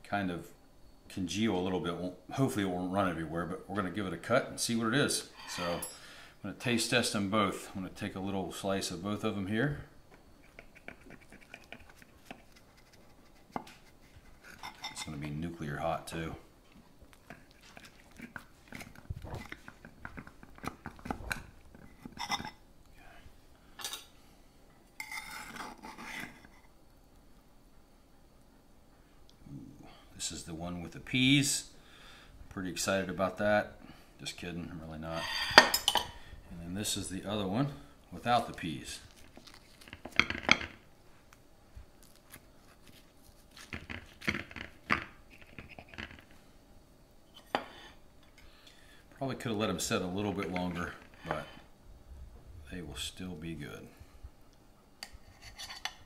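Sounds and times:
knife scraping ceramic dish: 5.3s - 6.0s, 13.5s - 15.2s, 25.0s - 26.6s, 35.1s - 36.1s, 55.1s - 56.0s
knife crunching through pie crust: 42.0s - 44.8s.

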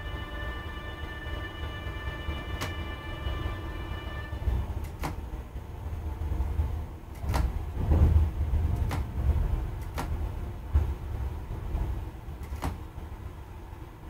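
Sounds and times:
low rumble of rail table: 4.4s - 14.0s.

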